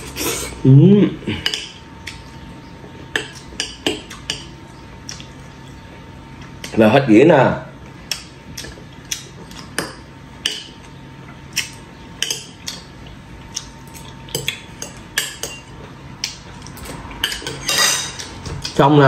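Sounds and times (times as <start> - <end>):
cutlery clinking on ceramic bowl: 16.8 - 18.3.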